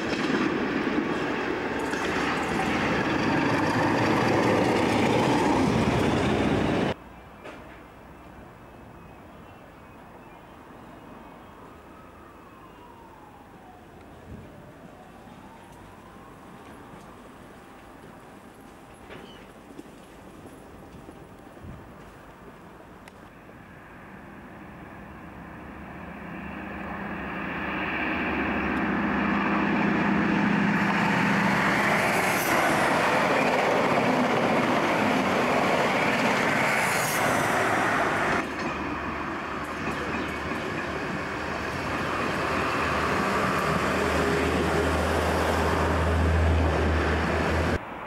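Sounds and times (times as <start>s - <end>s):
diesel train engine droning: 0.0s - 7.0s, 23.5s - 48.0s
express train rushing by: 0.0s - 7.0s, 23.5s - 48.0s.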